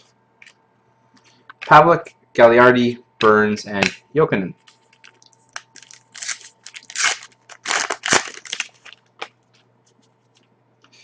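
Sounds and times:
foil wrapper crinkling and tearing: 4.6 - 9.3.

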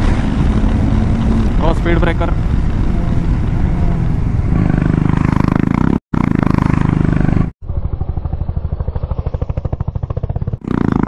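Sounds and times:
wind rushing on helmet: 0.0 - 6.0
motorcycle engine under throttle: 0.0 - 11.0.

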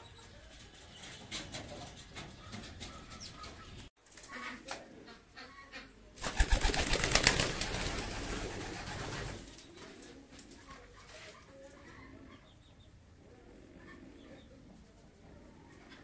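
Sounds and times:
pigeons cooing: 6.2 - 16.0.

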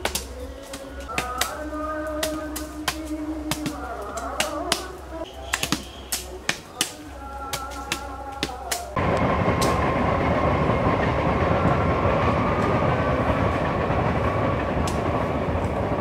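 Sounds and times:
loud steady rumbling: 8.6 - 16.0.

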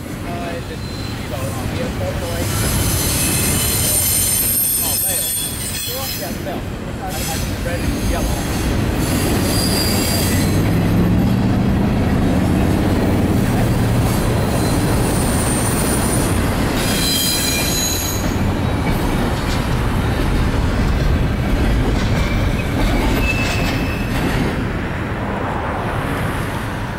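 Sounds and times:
clickety-clack over rail joints: 0.0 - 25.0
train wheels rumbling on rails: 0.0 - 26.9
high-pitched wheel squeals: 0.7 - 1.6, 2.4 - 6.4, 7.2 - 10.7, 14.4 - 18.8, 22.2 - 24.2.

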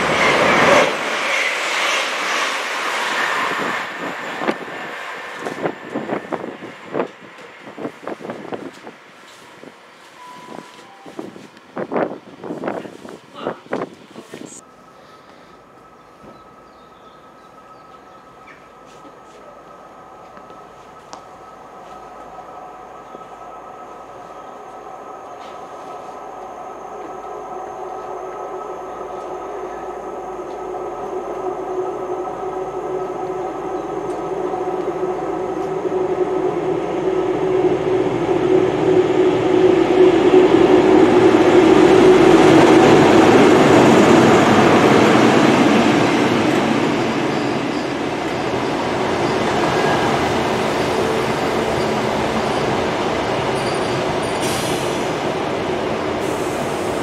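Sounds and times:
diesel train engine: 0.0 - 57.0
train rail noise rumble: 0.0 - 57.0.

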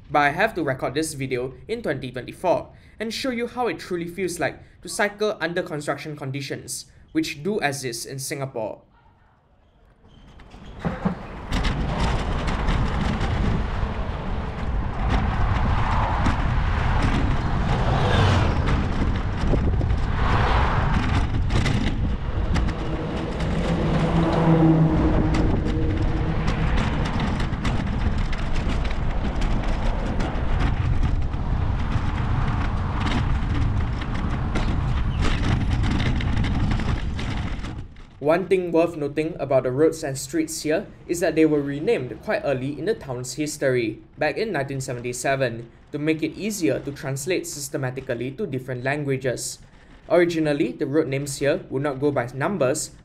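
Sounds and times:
bicycle knocks and rattles: 10.2 - 38.2
motor traffic rumble: 11.0 - 48.9
low hum: 11.3 - 38.2.

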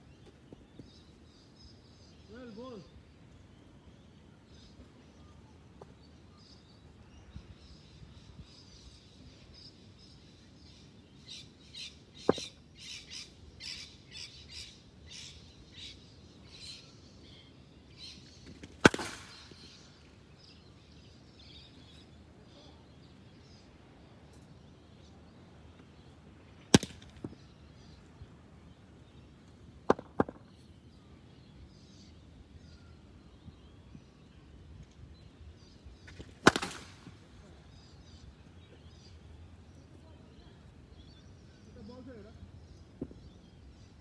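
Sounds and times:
birds chirping faintly: 0.0 - 44.0
cricket ball hitting bat: 18.7 - 19.4, 26.7 - 27.4, 29.9 - 30.4, 36.1 - 37.1.

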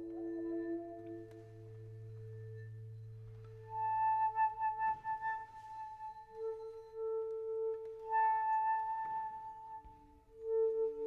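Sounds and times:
flute holding a long note: 3.7 - 11.0.

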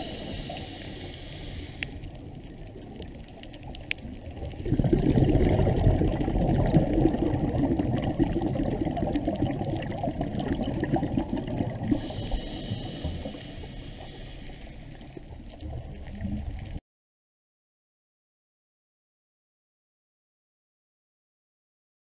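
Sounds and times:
hiss: 0.0 - 2.0, 11.9 - 14.9
muffled underwater noise: 0.0 - 3.7, 11.2 - 15.0
underwater clicks and gurgles: 0.0 - 16.8.

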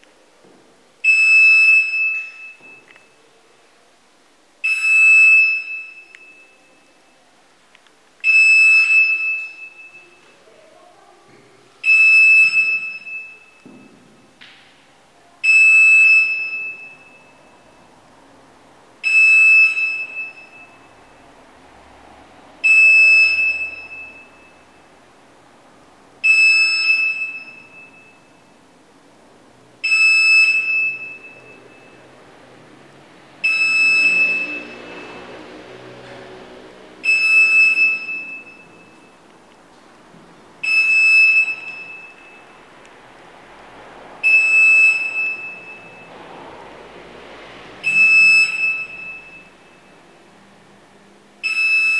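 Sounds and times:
infusion pump alarm beeping: 1.0 - 3.2, 4.6 - 7.1, 8.2 - 10.4, 11.8 - 14.4, 15.4 - 17.9, 19.0 - 21.4, 22.6 - 24.9, 26.2 - 28.6, 29.8 - 32.1, 33.4 - 35.7, 37.0 - 39.2, 40.6 - 42.6, 44.2 - 46.2, 47.8 - 50.2, 51.4 - 51.9.

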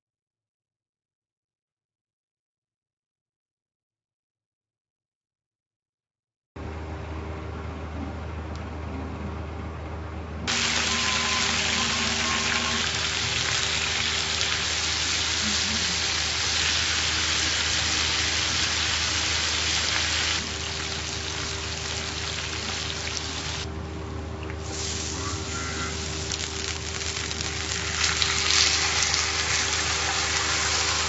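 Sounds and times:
steady low hum: 6.6 - 31.0
meat and shrimp sizzling in oil: 10.5 - 23.7, 24.6 - 31.0.

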